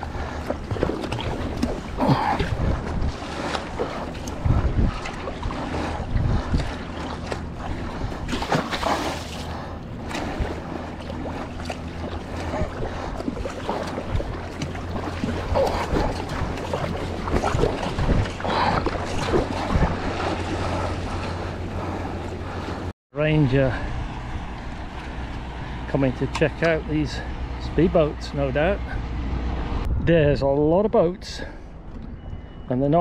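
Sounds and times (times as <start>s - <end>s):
paddle strokes in water: 0.0s - 22.9s
wind on microphone: 0.0s - 22.9s, 28.8s - 32.7s
water rushing along hull: 0.0s - 29.9s
motorboat engine drone: 0.0s - 30.0s, 31.4s - 33.0s.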